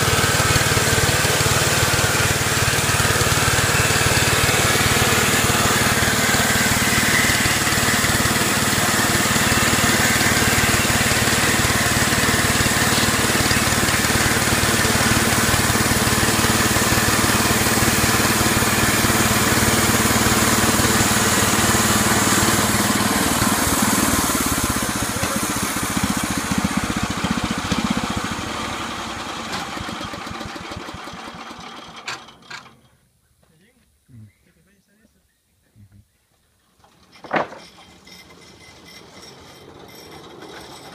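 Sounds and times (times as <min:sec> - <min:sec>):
band blade sawing wood: 0:00.0 - 0:28.2
small gasoline engine running: 0:00.0 - 0:32.8, 0:36.8 - 0:40.9
sharp knocks: 0:37.2 - 0:37.8.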